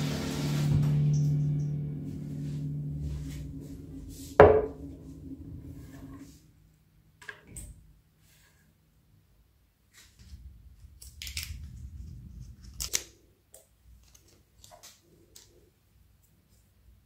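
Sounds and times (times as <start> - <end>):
background music: 0.0 - 6.2
saucepan knocking on wooden board: 4.4 - 4.8.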